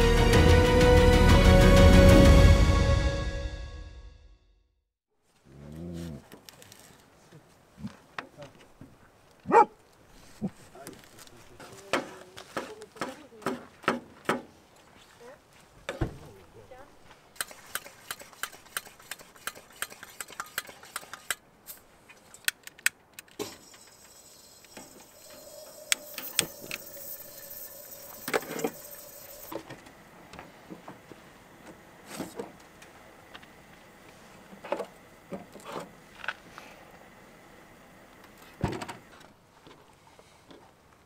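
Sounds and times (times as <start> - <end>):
steady hiss: 23.4 - 35.3.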